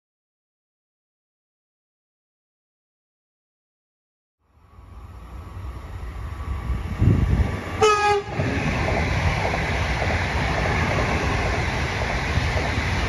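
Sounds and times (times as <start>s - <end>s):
train rumbling on rails: 4.5s - 13.0s
train horn blast: 7.8s - 8.4s.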